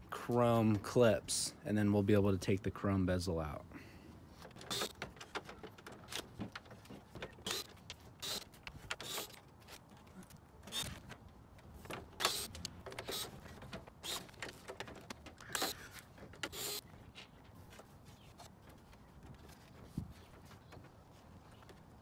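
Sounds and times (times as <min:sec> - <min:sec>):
cordless driver whirring: 0:04.6 - 0:05.0, 0:07.4 - 0:09.4, 0:12.2 - 0:13.4.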